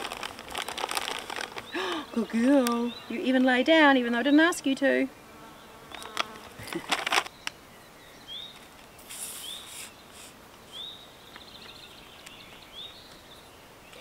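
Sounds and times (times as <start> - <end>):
sharp rustling clicks: 0.0 - 1.8, 5.9 - 7.6.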